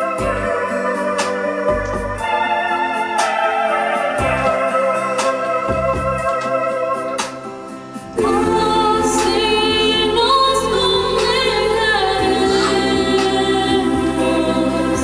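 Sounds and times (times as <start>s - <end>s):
keyboard sustained chords: 0.0s - 15.0s
woman singing a hymn: 8.2s - 15.0s.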